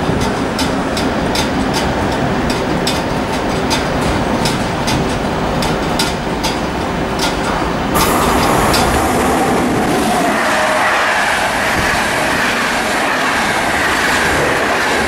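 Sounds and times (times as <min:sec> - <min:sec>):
train rumble: 0:00.0 - 0:15.0
train wheels clicking over rail joints: 0:00.0 - 0:15.0
loud rushing noise: 0:07.9 - 0:15.0.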